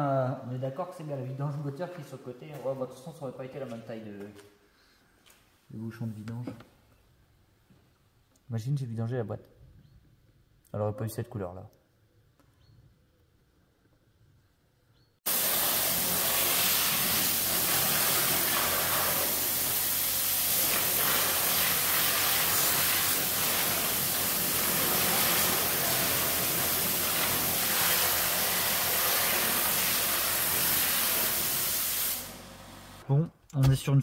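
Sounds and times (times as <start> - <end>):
loud steady hiss: 15.3 - 33.0.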